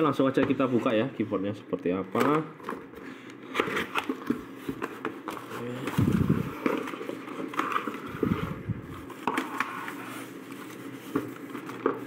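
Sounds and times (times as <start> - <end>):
foam wrap rustling: 3.5 - 12.0.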